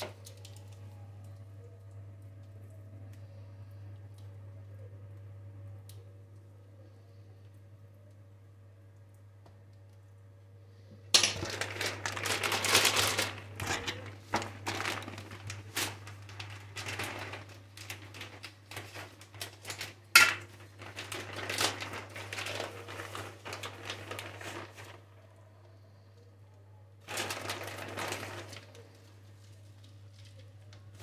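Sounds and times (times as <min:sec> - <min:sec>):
plastic bag crinkling: 0:11.1 - 0:25.8, 0:27.0 - 0:31.0.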